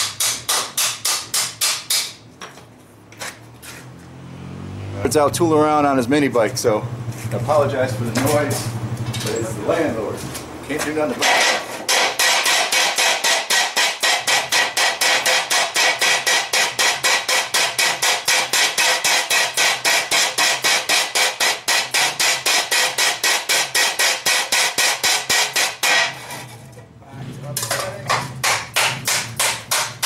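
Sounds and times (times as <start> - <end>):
hammer striking hot steel: 0.0 - 2.2, 11.2 - 26.4, 27.7 - 30.0.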